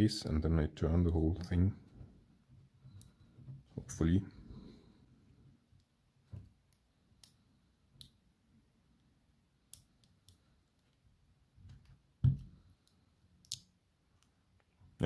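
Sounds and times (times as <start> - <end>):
small metallic clicks: 12.7 - 14.4.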